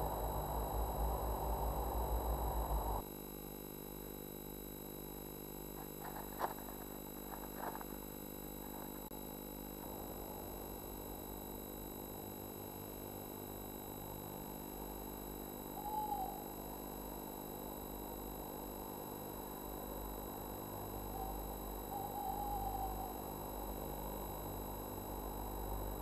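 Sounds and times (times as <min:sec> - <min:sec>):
steady hum and hiss: 0:00.0 - 0:26.0
faint pitched call: 0:15.6 - 0:16.9, 0:20.8 - 0:23.6.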